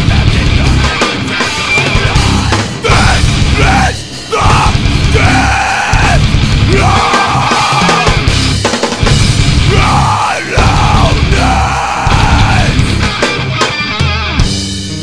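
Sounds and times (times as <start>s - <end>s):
heavy rock music: 0.0s - 15.0s
person shouting vocals: 2.8s - 8.3s, 9.6s - 12.8s.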